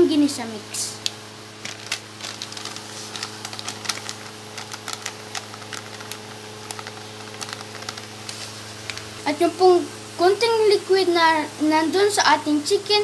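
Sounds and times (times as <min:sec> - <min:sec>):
steady low hum: 0:00.0 - 0:13.0
broth crackling and popping: 0:01.0 - 0:09.3.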